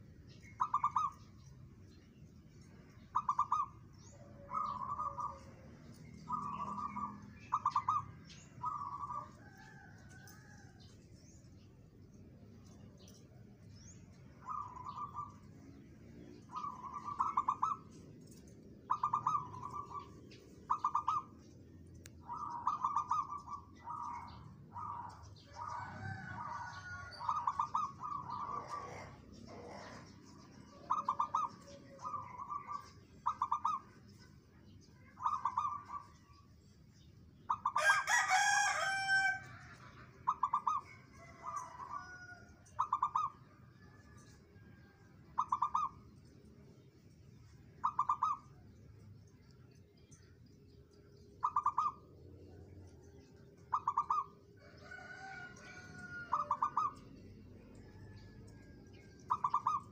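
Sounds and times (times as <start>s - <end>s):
dove cooing: 3.1s - 5.6s, 6.2s - 10.6s, 16.4s - 18.0s, 18.9s - 21.3s, 22.2s - 33.9s, 35.0s - 36.3s, 37.5s - 44.1s, 45.4s - 46.0s, 47.8s - 48.5s, 51.4s - 52.0s, 53.7s - 57.0s, 59.2s - 59.9s.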